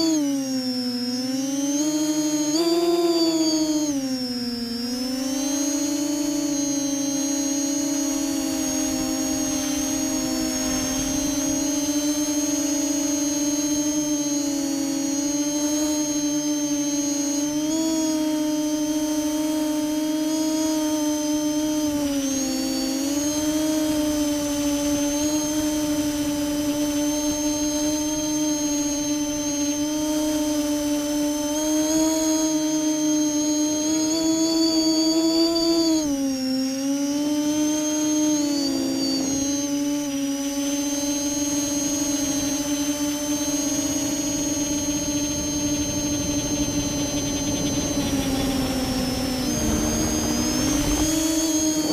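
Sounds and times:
drone propellers whining: 0.0 - 51.9
wind noise: 8.0 - 14.4, 40.5 - 51.9.

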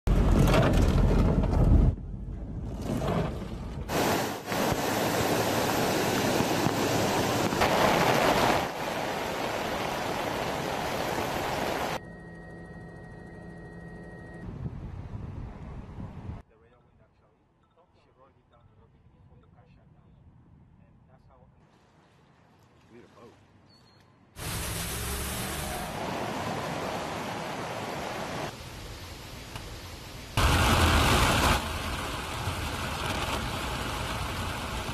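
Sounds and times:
cars splashing through floodwater: 3.9 - 12.0, 24.4 - 28.6
heavy rain: 3.9 - 12.0, 24.4 - 34.9.

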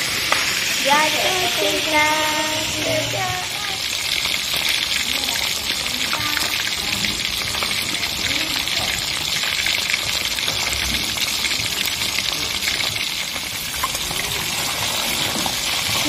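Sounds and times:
fish frying in hot oil: 0.0 - 16.0.

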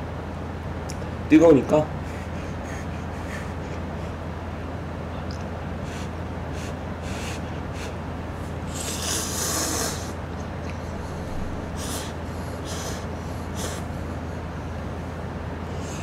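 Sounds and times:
man blowing on food: 5.8 - 14.5
man slurping noodles: 8.7 - 10.2
low hum: 9.9 - 16.0.

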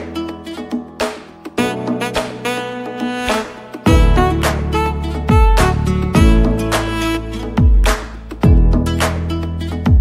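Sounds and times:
instrumental music: 0.0 - 10.0.

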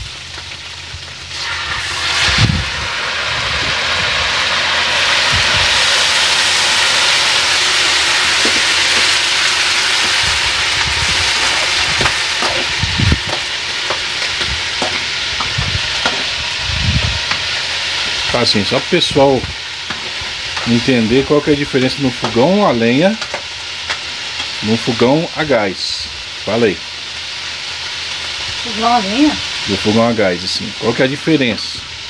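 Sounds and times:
food sizzling in pans: 0.0 - 32.0.

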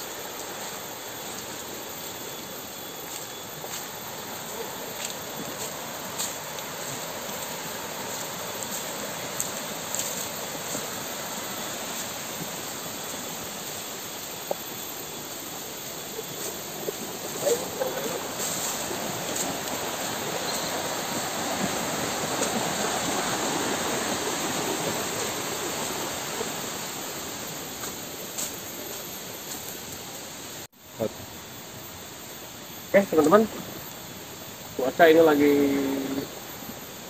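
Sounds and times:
river rushing over rapids: 3.9 - 15.8, 16.6 - 27.7.

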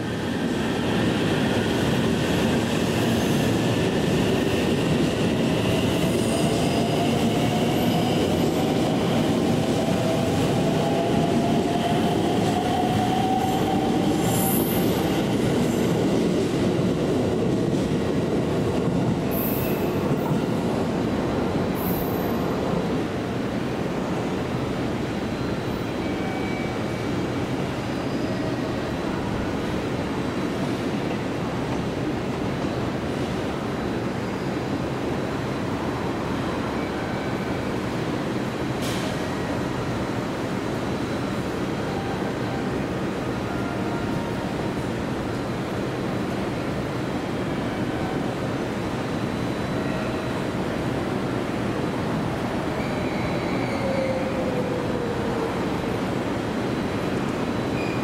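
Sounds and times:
electric trains rumbling: 0.0 - 58.0
wheel squeal on curved track: 52.8 - 54.5.

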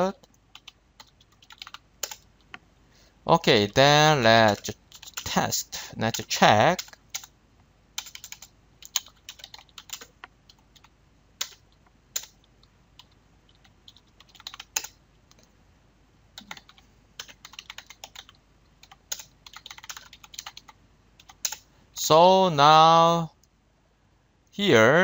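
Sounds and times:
computer keyboard typing: 0.2 - 2.6, 4.4 - 5.3, 6.1 - 7.3, 8.0 - 15.5, 16.4 - 21.6.

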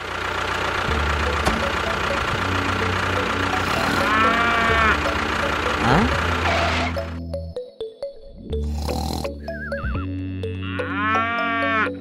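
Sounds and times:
cow mooing: 3.6 - 5.1, 10.0 - 12.0.

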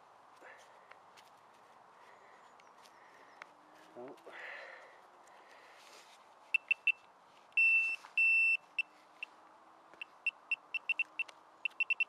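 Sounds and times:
metal detector beeping: 6.5 - 7.0, 7.6 - 8.9, 10.0 - 12.0.

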